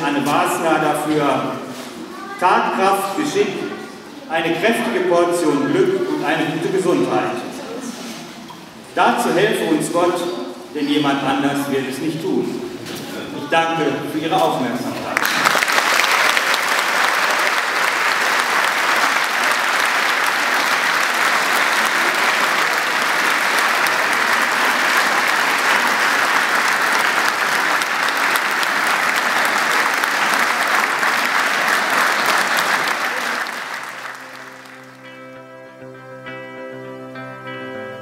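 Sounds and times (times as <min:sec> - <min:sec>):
audience applauding: 0:15.1 - 0:35.3
music: 0:33.9 - 0:38.0.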